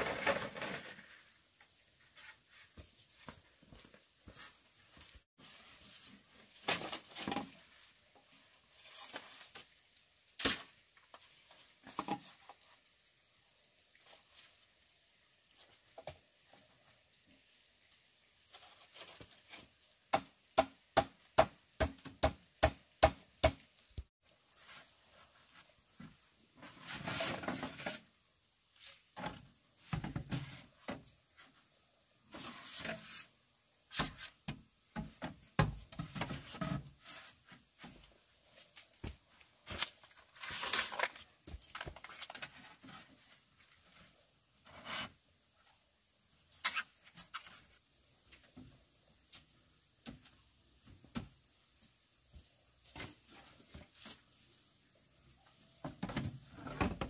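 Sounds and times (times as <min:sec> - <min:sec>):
rustling and scraping: 0:00.0 - 0:12.9, 0:18.4 - 0:19.8, 0:24.4 - 0:45.8, 0:51.8 - 0:54.7.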